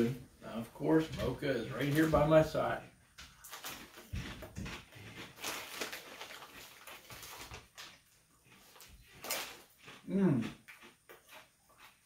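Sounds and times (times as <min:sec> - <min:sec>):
plastic chip bag crinkling: 0:01.7 - 0:02.7, 0:03.3 - 0:10.1.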